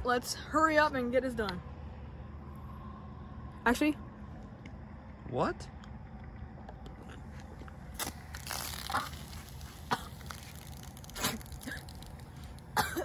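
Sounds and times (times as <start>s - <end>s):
soda sputtering and splashing: 7.9s - 13.0s.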